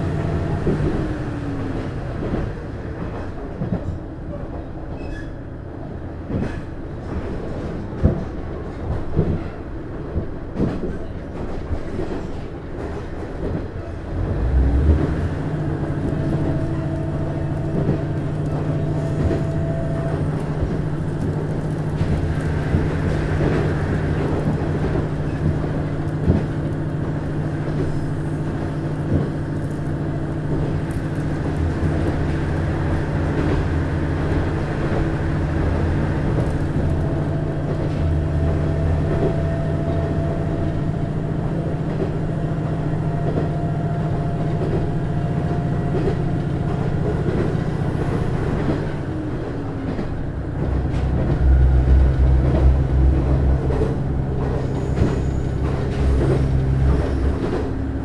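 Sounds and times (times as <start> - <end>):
wheels rumbling on rail: 0.0 - 58.0
diesel engine drone: 14.0 - 42.0, 44.1 - 58.0.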